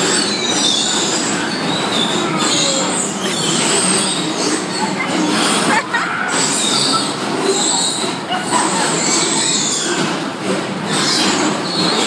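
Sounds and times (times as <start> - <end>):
bumper cars mechanical din: 0.0 - 12.0
high squealing tones: 0.0 - 12.0
voices: 2.0 - 10.4.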